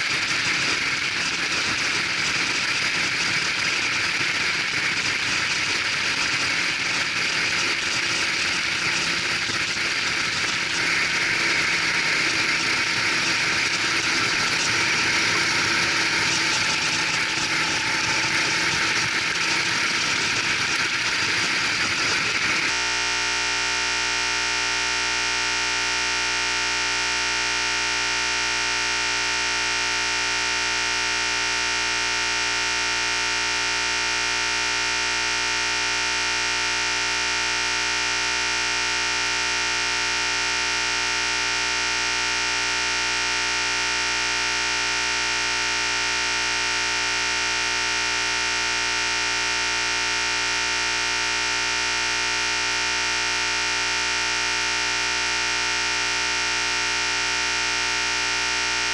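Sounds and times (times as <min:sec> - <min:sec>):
electronic glitch buzz: 0:00.0 - 0:58.9
go-kart engine droning: 0:06.2 - 0:22.8.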